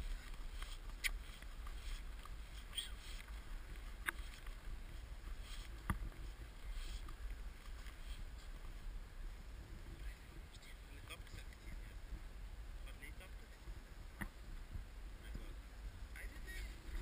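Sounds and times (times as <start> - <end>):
footsteps crunching in snow: 0.0 - 9.5
wind rumble on microphone: 0.0 - 17.0.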